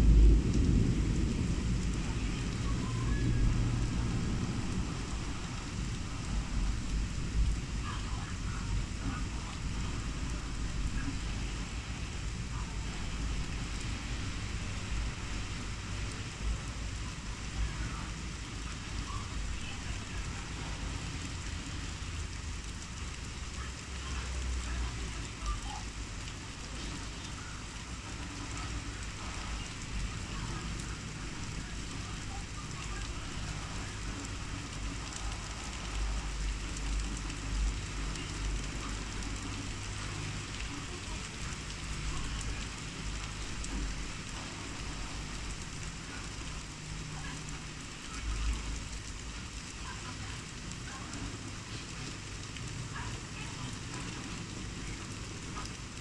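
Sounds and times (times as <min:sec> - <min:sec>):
low rumble: 0:00.0 - 0:17.4
steady rain: 0:00.0 - 0:56.0.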